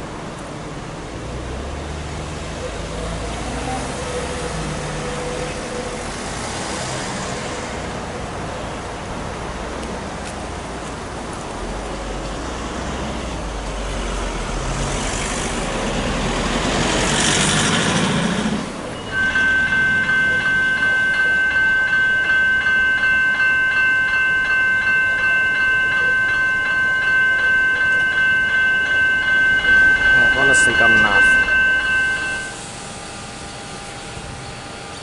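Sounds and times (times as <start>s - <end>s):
road traffic passing: 0.0s - 35.0s
level crossing electronic bell: 19.0s - 32.6s.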